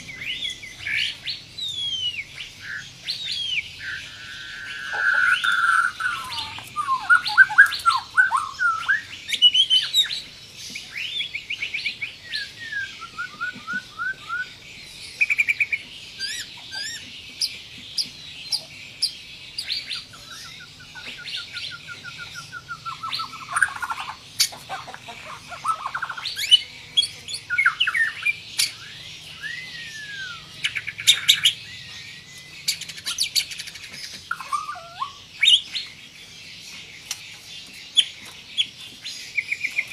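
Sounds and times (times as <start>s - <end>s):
songbird singing whistles and trills: 0.0s - 24.5s, 25.6s - 36.0s.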